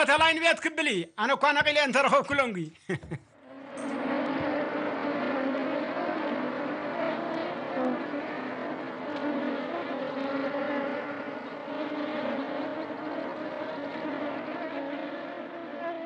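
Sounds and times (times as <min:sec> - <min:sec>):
wavering low tones: 0:03.4 - 0:16.0
engine-like drone with hiss: 0:03.5 - 0:15.9.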